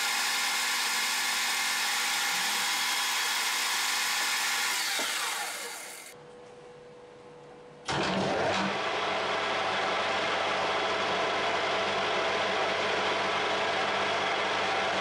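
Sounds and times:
metal lathe running: 0:00.0 - 0:06.2.

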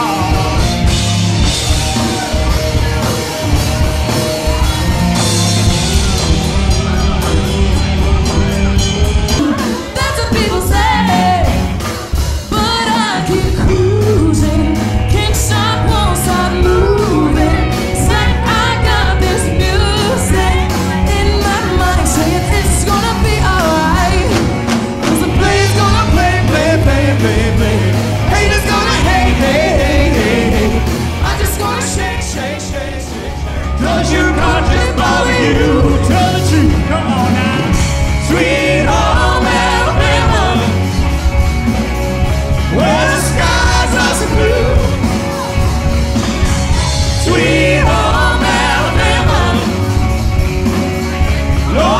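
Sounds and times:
live band playing pop rock: 0:00.0 - 0:51.9
woman singing: 0:09.3 - 0:32.4.

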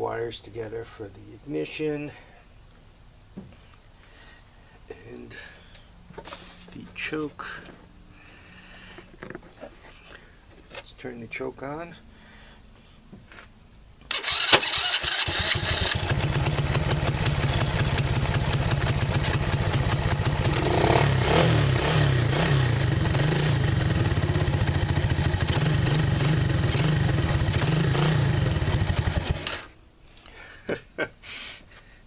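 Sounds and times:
electric starter cranking: 0:14.1 - 0:19.5, 0:26.5 - 0:29.7.

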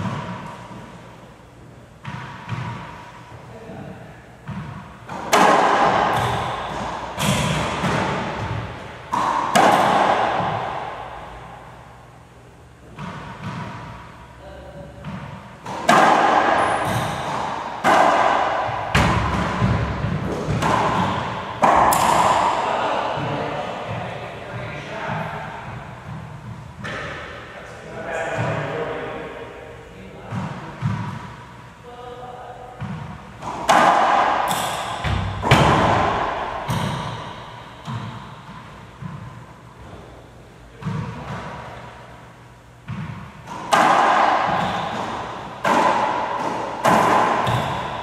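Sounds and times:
racquetball smacking off racquets: 0:00.0 - 0:01.0, 0:02.0 - 0:03.4, 0:04.4 - 0:11.9, 0:12.8 - 0:14.2, 0:15.0 - 0:24.0, 0:25.0 - 0:27.5, 0:30.3 - 0:31.6, 0:32.8 - 0:40.1, 0:42.8 - 0:48.0.

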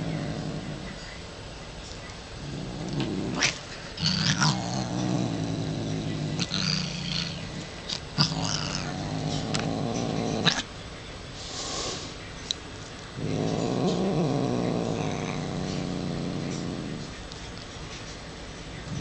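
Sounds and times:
cat growling: 0:00.0 - 0:01.1, 0:02.3 - 0:10.7, 0:13.1 - 0:17.3
cat hissing: 0:02.4 - 0:10.7.

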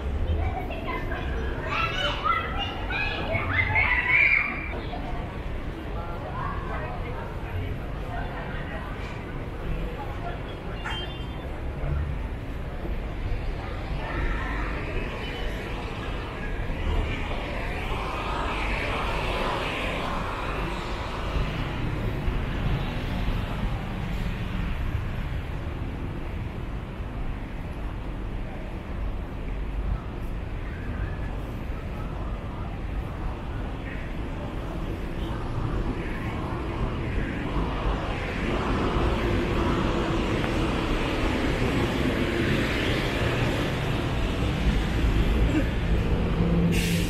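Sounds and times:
high traffic hiss: 0:00.0 - 0:47.0
vehicles passing low rumble: 0:11.4 - 0:47.0.

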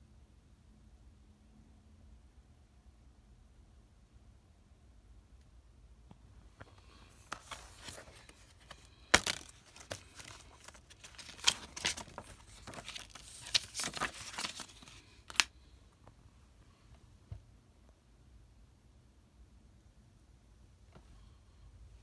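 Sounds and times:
plastic case crinkling: 0:06.7 - 0:15.5.

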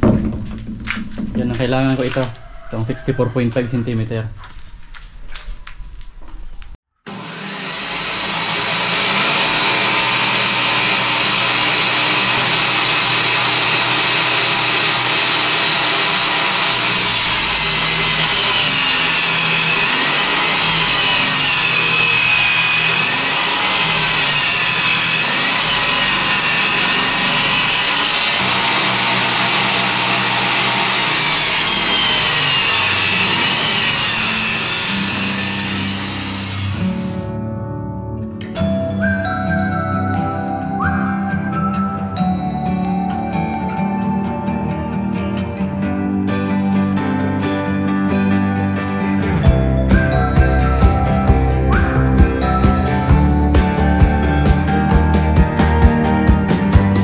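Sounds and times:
power saw cutting plywood: 0:07.1 - 0:37.3.

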